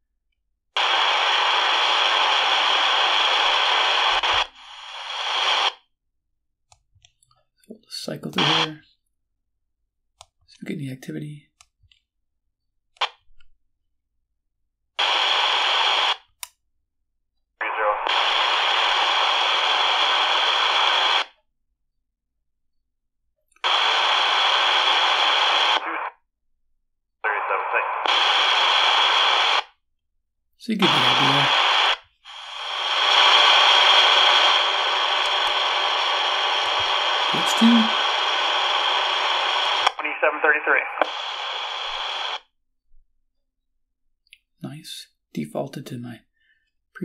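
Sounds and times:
radio static hiss: 0.8 - 5.8, 7.9 - 8.8, 15.0 - 16.3, 17.6 - 21.3, 23.6 - 26.1, 27.3 - 29.6, 30.7 - 42.4.

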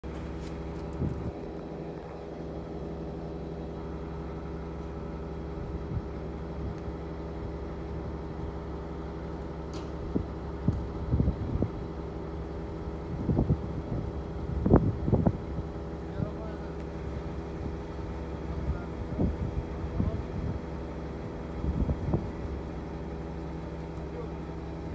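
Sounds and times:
engine running steadily: 0.0 - 24.9.

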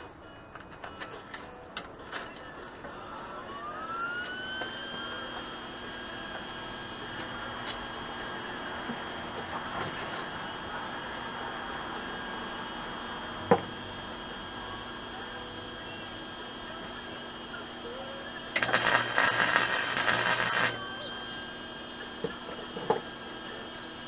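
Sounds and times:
faint steady hum: 0.0 - 24.0
welder arc crackling: 18.5 - 20.8.

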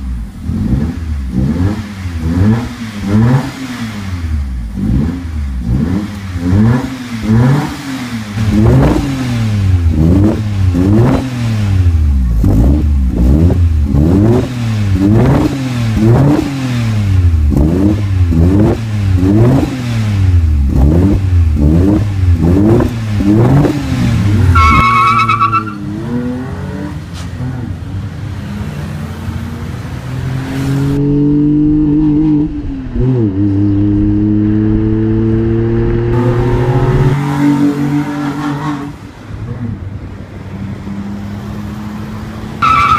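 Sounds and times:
car accelerating away: 0.0 - 39.8
car engine revving: 0.0 - 42.9.

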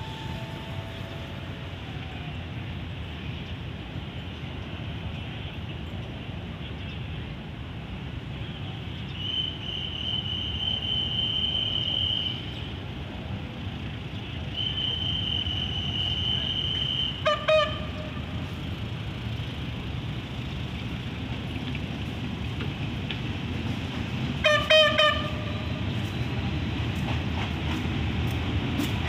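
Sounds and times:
high steady tone: 0.0 - 2.0
distant locomotive engine rumble: 0.0 - 29.0
train horn toots: 14.6 - 18.4, 24.4 - 26.1.

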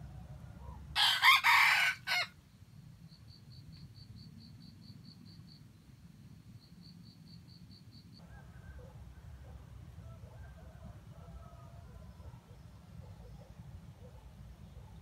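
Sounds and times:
rooster crowing: 0.1 - 2.4, 8.2 - 12.3.

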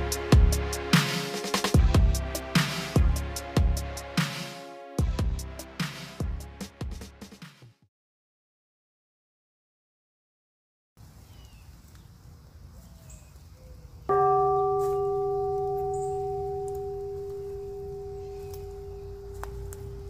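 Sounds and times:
birds chirping: 11.0 - 20.0
faint woodland ambience: 11.0 - 20.0
bell-like metallic ring: 14.1 - 20.0.

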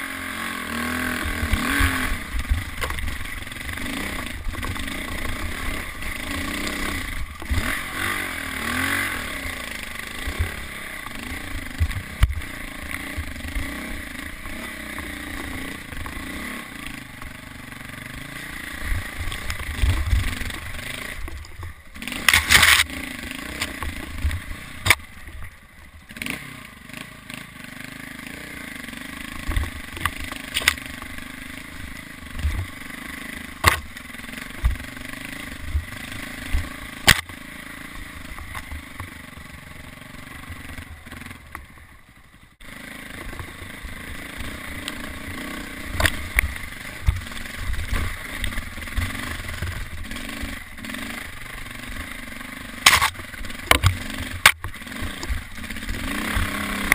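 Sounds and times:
dirt bike engine revving: 0.0 - 56.9
bike knocking over rocks: 21.2 - 22.9, 33.6 - 34.9, 52.8 - 55.6.

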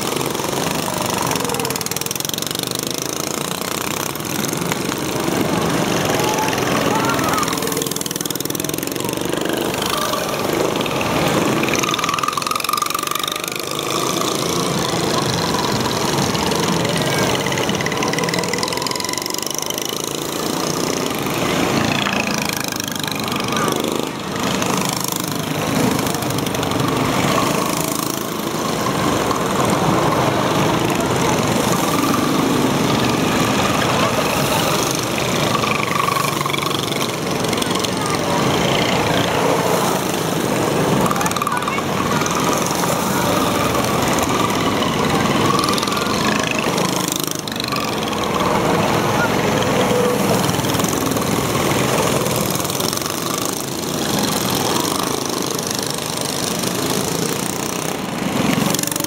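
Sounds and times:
go-kart engines revving past: 0.0 - 59.0.

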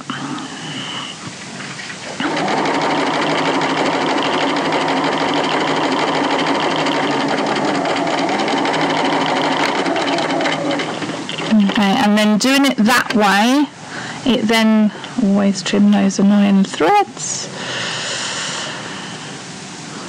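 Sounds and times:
sewing machine stitching: 2.2 - 12.1.

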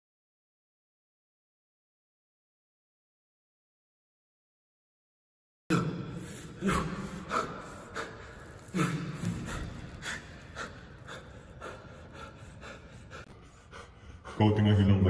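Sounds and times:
man moaning: 5.7 - 9.8
man gasping and breathing hard: 5.7 - 14.5.

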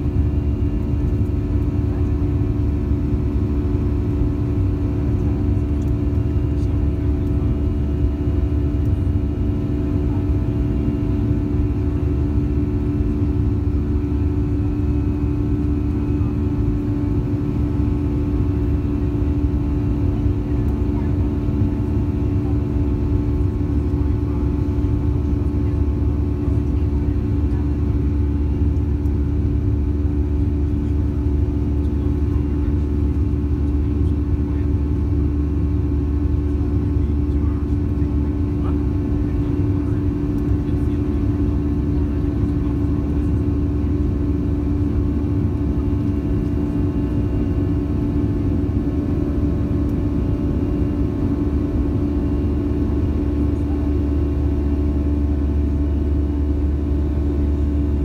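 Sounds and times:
jet engine drone in cabin: 0.0 - 58.0.

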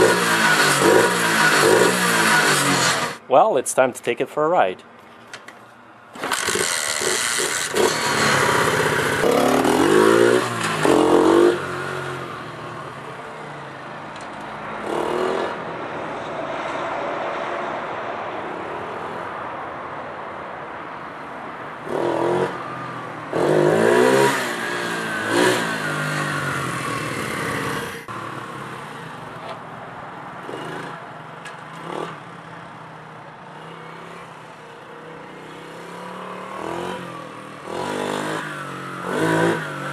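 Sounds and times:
minibike engine revving: 0.0 - 3.2, 6.2 - 13.6, 14.8 - 15.6, 21.8 - 29.2, 30.4 - 32.5, 33.4 - 39.9.

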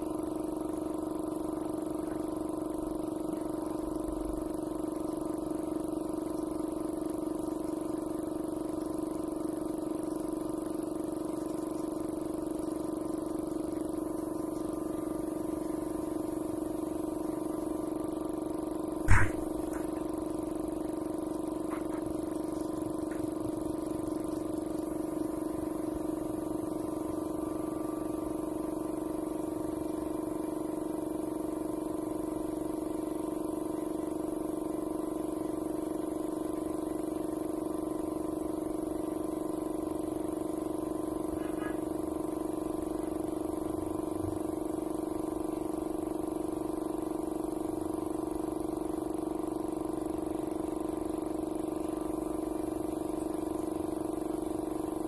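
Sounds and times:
steady motor hum: 0.0 - 55.0
motor humming: 13.5 - 30.4.

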